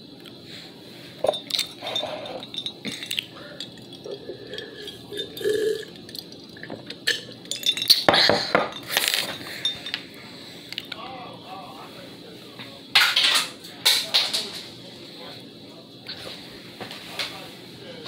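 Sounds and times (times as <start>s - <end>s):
glass tumbler clinking: 1.2s - 10.1s.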